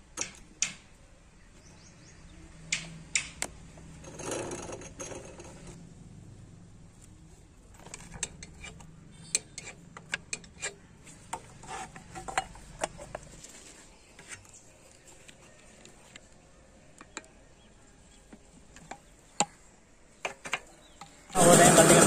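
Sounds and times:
hand tools clicking and knocking: 7.7 - 13.3.

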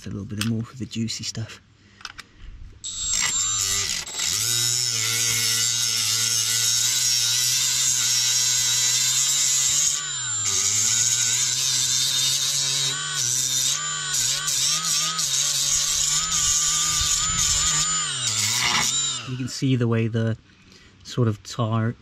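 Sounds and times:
rotary tool whining: 2.8 - 19.6.

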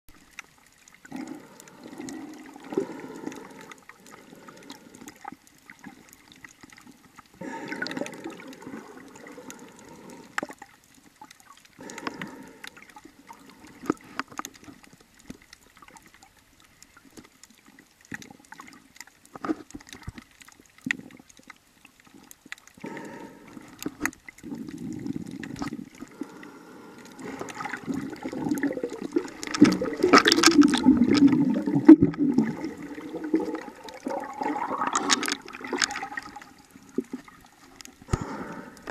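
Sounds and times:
muffled underwater gurgling and sloshing: 0.1 - 38.9.

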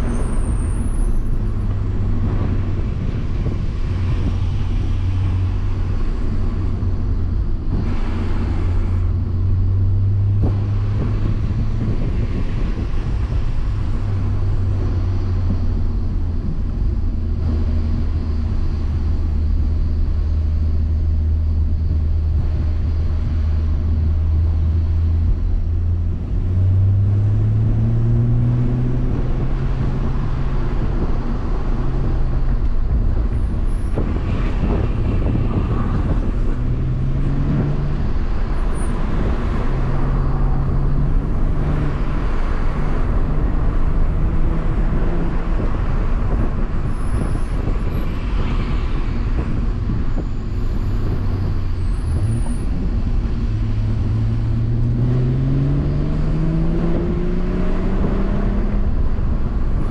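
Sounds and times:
car engine from inside cabin: 0.0 - 59.9
tyre and road noise: 0.0 - 59.9.

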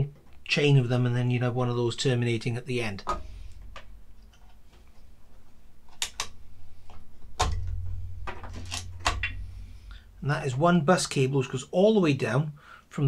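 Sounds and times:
sharp clicks: 5.9 - 6.4.

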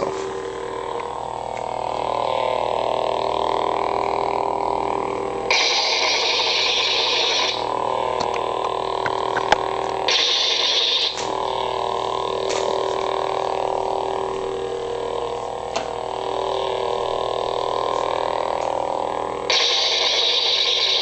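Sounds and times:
lightsaber hum: 0.0 - 21.0
lightsaber hiss: 5.5 - 7.7, 10.1 - 15.4, 19.5 - 21.0.

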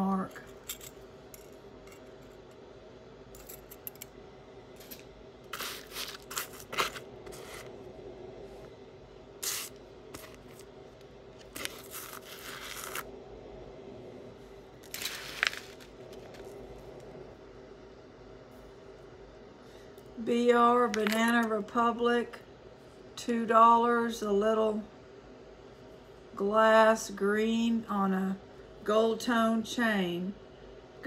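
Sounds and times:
faint steady hum: 0.0 - 31.0
jewelry rustling and scraping: 3.4 - 4.1, 4.8 - 7.8, 11.4 - 13.1, 14.8 - 17.0.

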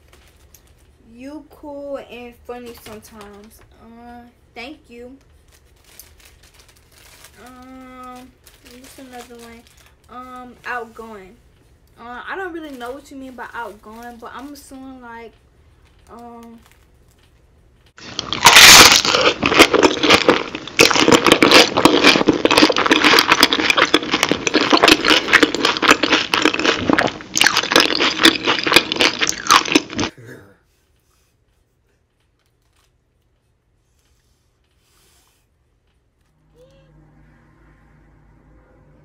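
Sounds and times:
paper wrapper crinkling: 0.0 - 1.0, 5.2 - 10.5, 15.8 - 30.1, 32.1 - 33.5
crunching and chewing: 15.8 - 30.1.

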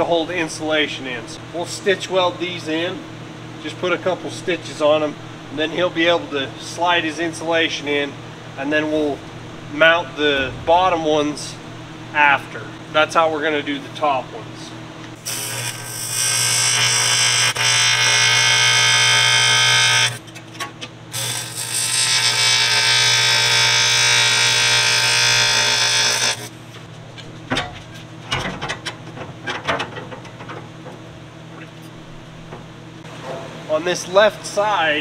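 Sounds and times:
welding arc buzzing: 14.8 - 20.4, 21.1 - 27.5.

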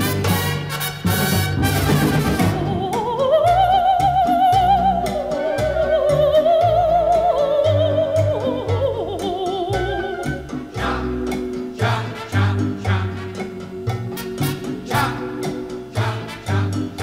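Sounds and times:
bass line: 0.0 - 17.0
light percussion: 0.0 - 17.0
operatic voice singing: 2.4 - 13.5, 14.8 - 17.0.

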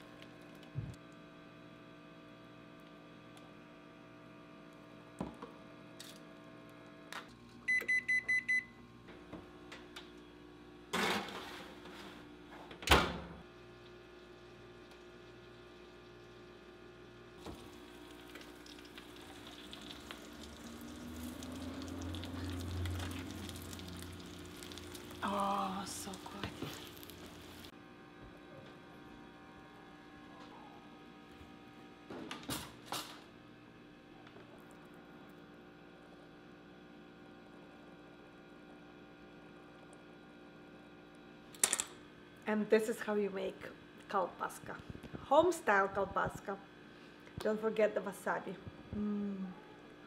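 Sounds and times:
sizzle and hum: 0.0 - 12.6, 13.4 - 50.0
oven control panel beeps: 7.7 - 8.8.

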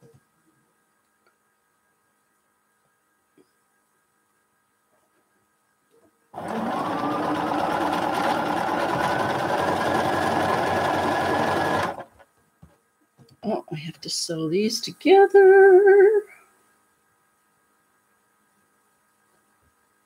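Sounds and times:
sewing machine motor whine: 6.4 - 12.2.

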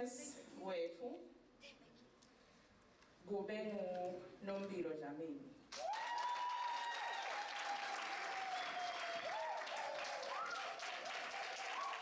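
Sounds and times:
audience applauding: 5.7 - 12.0
high-pitched cheering cry and whoops: 5.8 - 12.0.

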